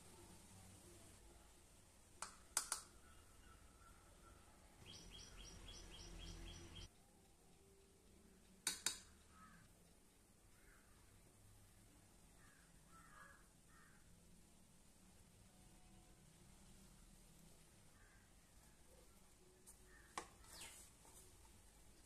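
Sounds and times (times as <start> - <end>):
bird chirping rapidly: 4.8 - 6.9.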